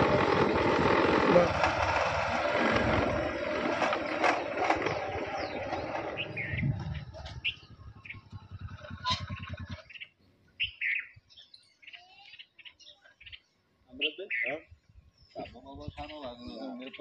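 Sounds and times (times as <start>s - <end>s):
loud rushing noise: 0.0s - 9.5s
motorcycle engine puttering: 0.0s - 10.1s
birds chirping: 0.0s - 17.0s.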